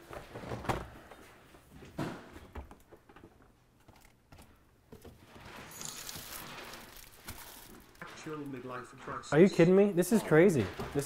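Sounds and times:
rustling: 5.1 - 9.0.

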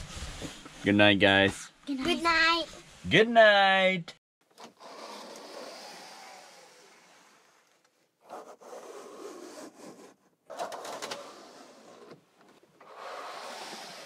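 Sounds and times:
blinds sliding open: 4.6 - 14.0.

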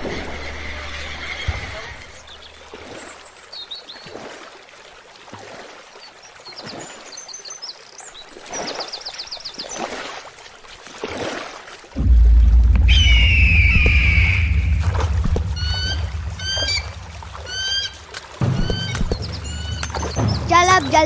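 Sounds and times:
water trickling over rocks: 2.0 - 12.8, 15.0 - 21.0
small birds chirping: 12.9 - 21.0.

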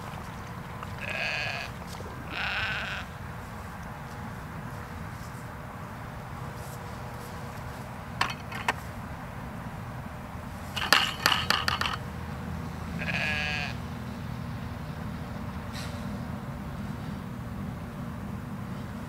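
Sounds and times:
sheep bleating: 0.9 - 3.2, 13.0 - 13.8.

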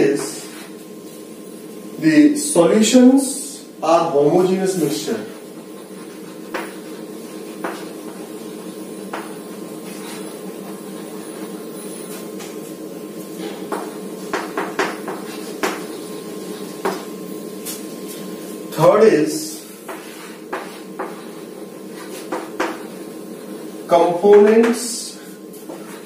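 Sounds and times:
chalk scratching on a chalkboard: 5.8 - 8.3, 9.2 - 12.2, 14.4 - 15.8, 19.5 - 23.1, 25.2 - 26.0.

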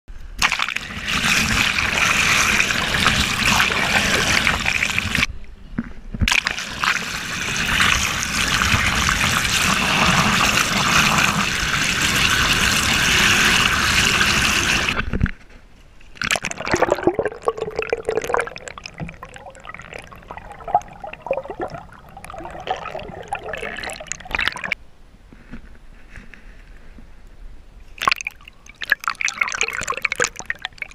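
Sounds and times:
water trickling and splashing: 16.2 - 24.8, 28.0 - 30.9
water rushing and sloshing: 16.4 - 24.8.

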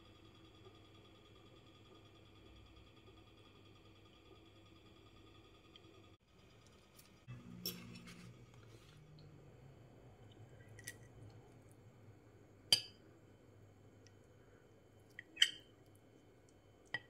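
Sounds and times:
fork clinking on ceramic plate: 15.4 - 15.7.

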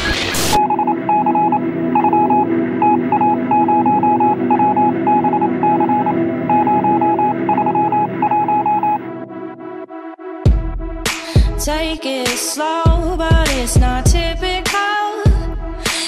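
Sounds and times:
short high electronic beeps: 0.4 - 9.0
low electronic hum: 0.6 - 9.6.

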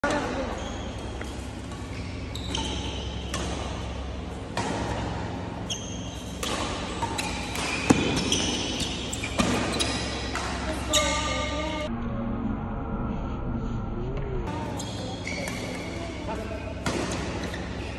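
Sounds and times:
shoes squeaking on court floor: 0.0 - 11.9, 14.5 - 17.9
racket hitting shuttlecock: 1.0 - 11.7, 14.9 - 17.9.

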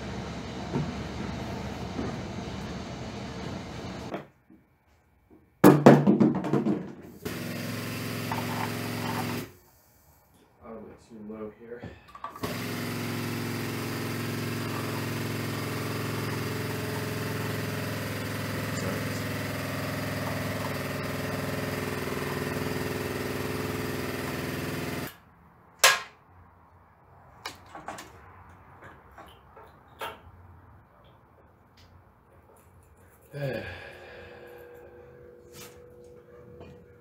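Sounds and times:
small motor humming: 12.4 - 25.1.

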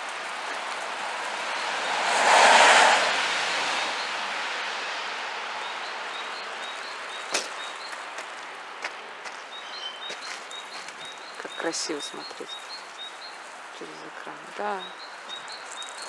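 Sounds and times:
vehicle passing on wet street: 0.0 - 16.0
small bird chirping: 6.1 - 8.1, 9.5 - 16.0.

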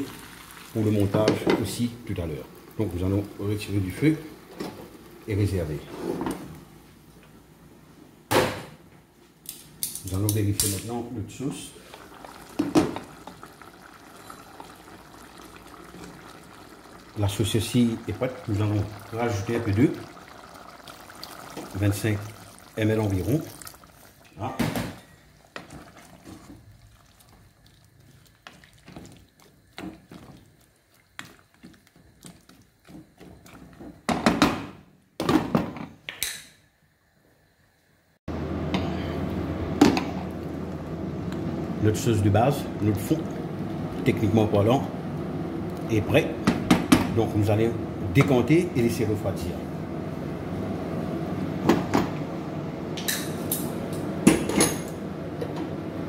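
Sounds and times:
whisk and spoon stirring in pot: 25.6 - 33.9
kitchen pots and utensils clinking: 53.0 - 55.6.

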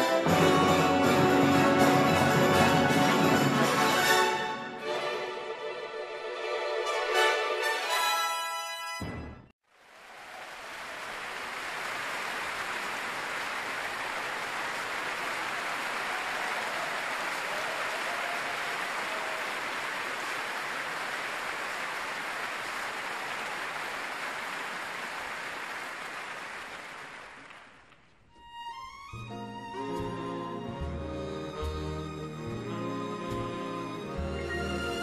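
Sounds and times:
audience applauding: 0.2 - 4.3, 9.8 - 28.2.

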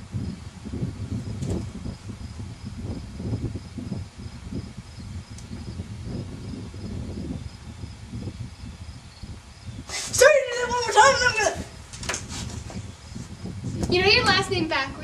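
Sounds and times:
insect chirping: 0.0 - 13.9.

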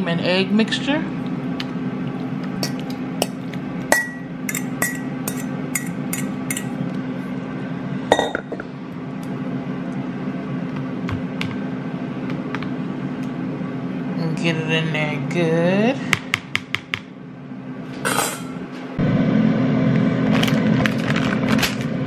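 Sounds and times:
steady low hum: 0.0 - 22.0
fork clinking on metal bowl: 2.6 - 6.7.

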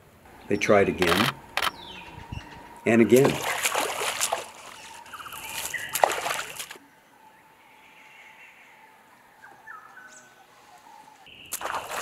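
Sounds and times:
loud water splashes: 3.1 - 6.8, 11.5 - 12.0.

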